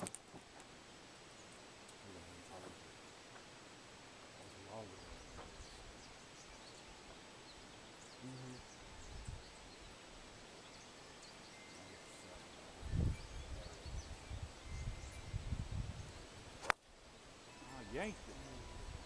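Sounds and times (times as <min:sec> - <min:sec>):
faint bird chirps: 0:04.2 - 0:16.4, 0:17.1 - 0:19.0.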